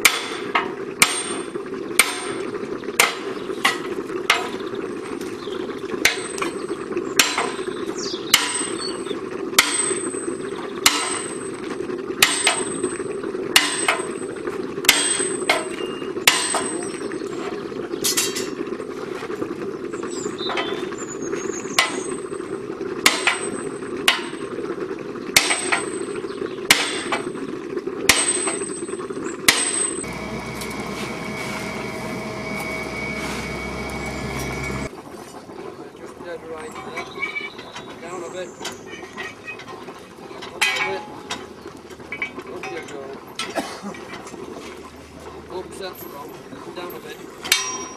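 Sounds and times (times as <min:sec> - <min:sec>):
hammer clanging on steel: 0:13.6 - 0:14.2, 0:14.9 - 0:16.8, 0:29.5 - 0:34.9, 0:47.5 - 0:47.9
steady low hum: 0:29.9 - 0:34.9
mechanical drone with whine: 0:30.0 - 0:34.9.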